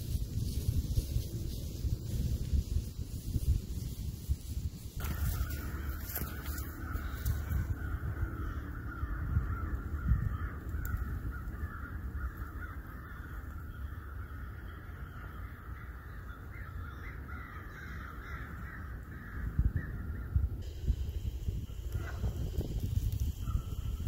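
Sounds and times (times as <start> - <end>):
chorus of animals calling: 5.0 - 20.4.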